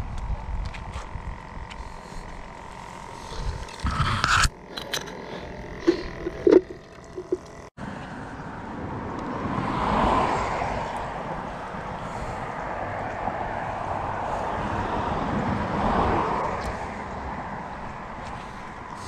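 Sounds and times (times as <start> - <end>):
fishing gear rustling and knocking: 3.6 - 7.6
passing vehicle: 5.9 - 19.0.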